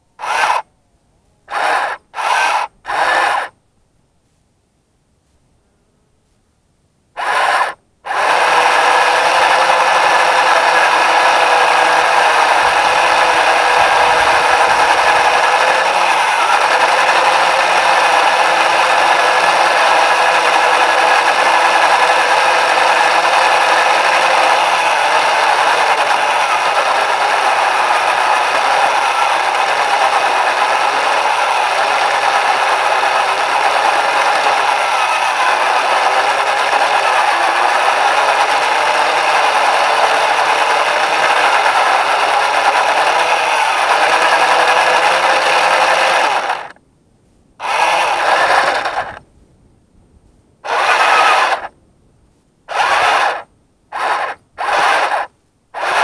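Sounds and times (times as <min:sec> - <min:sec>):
small electric motor whine: 0:00.0 - 0:00.7, 0:01.5 - 0:03.6, 0:07.2 - 0:46.8, 0:47.6 - 0:49.2, 0:50.6 - 0:51.7, 0:52.7 - 0:56.0.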